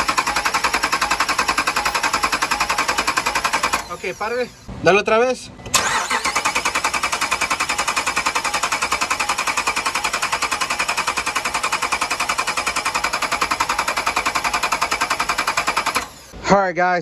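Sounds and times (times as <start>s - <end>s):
engine cranking on starter: 5.7s - 16.4s.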